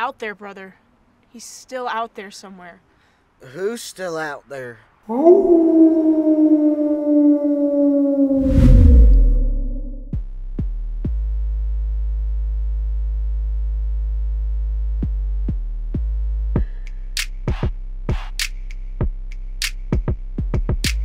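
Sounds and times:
falling howl-like tone: 5.1 - 10.1
low boom: 8.1 - 10.2
synth bass note: 8.4 - 10.2
drum-machine beat: 16.0 - 21.0.

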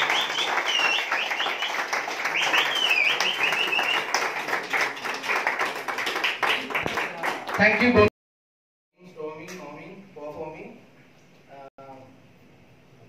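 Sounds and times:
people clapping: 0.0 - 8.1.

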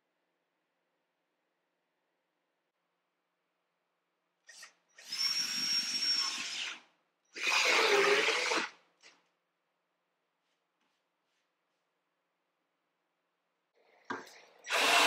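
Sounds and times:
cordless drill drilling into wood: 4.5 - 6.8, 7.4 - 8.7, 14.7 - 15.0.

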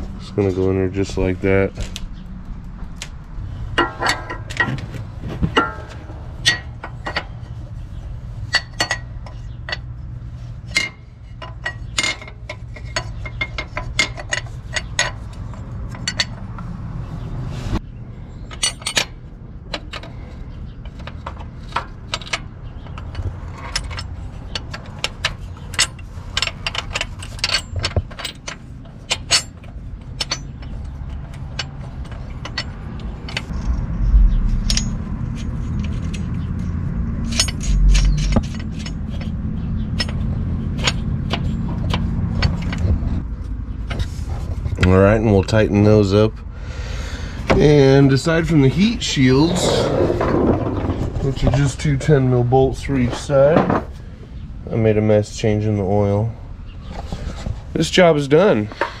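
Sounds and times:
steady low hum: 0.0 - 59.0
hand tools and metal parts clinking: 0.2 - 16.7, 18.3 - 46.3.

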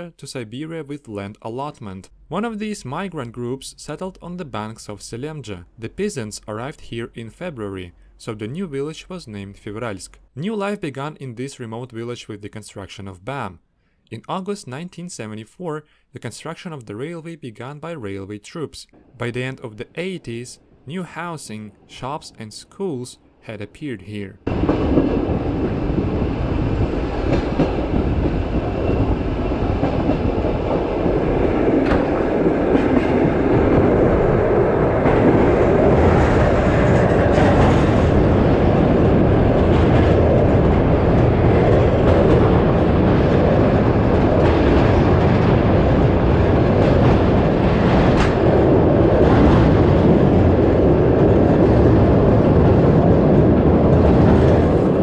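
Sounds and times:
train wheels rumbling: 24.4 - 55.0.

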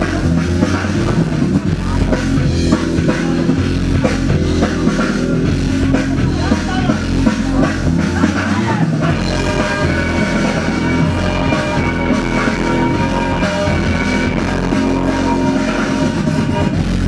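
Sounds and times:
loud music with drum beat: 0.0 - 17.0.

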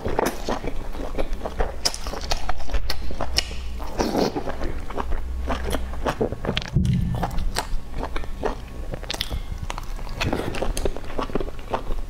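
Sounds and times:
wet chewing: 0.0 - 12.0
lip smacks and mouth clicks: 9.0 - 9.5.

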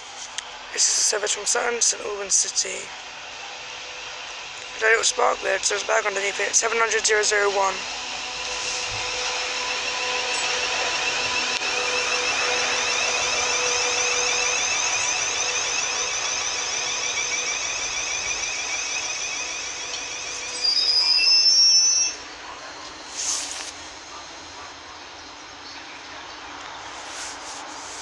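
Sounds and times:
electric train whine: 0.0 - 28.0
train running noise: 0.0 - 28.0
brake squeal: 7.8 - 24.0.

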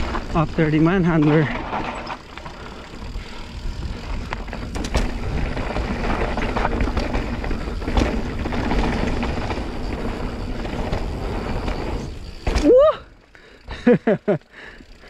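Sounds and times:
bike rattling: 0.0 - 15.0
rush of tyres and air: 1.4 - 12.9.

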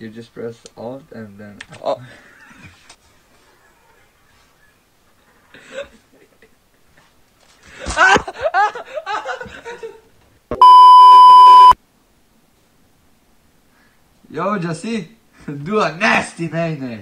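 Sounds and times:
censor bleep: 10.6 - 11.8.

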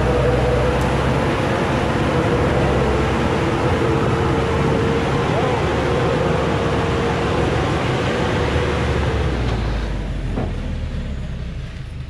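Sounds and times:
steady whine: 0.0 - 10.2
truck engine working hard: 0.0 - 12.0.

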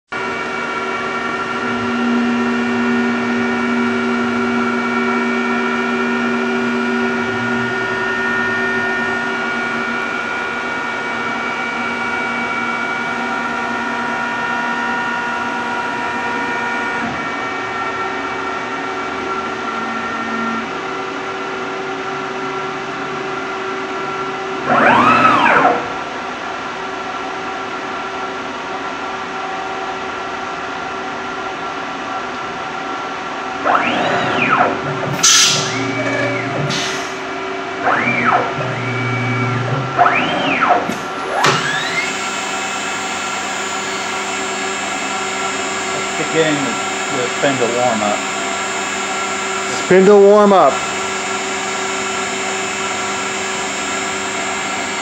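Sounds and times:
brief rising and falling whine: 0.2 - 21.5, 22.3 - 26.3, 32.7 - 55.0
cnc router whining: 0.2 - 26.8, 31.0 - 55.0.

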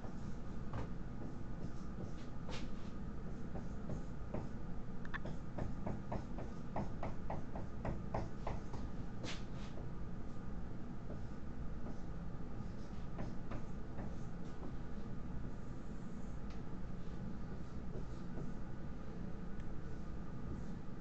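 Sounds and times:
low room hum: 0.0 - 21.0
marker writing on whiteboard: 0.7 - 4.6, 5.2 - 9.8, 12.6 - 14.8, 17.0 - 18.6, 19.8 - 20.8.

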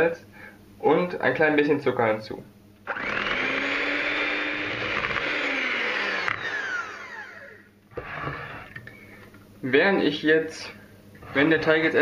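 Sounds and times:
electric hand mixer whisking: 2.9 - 8.9.

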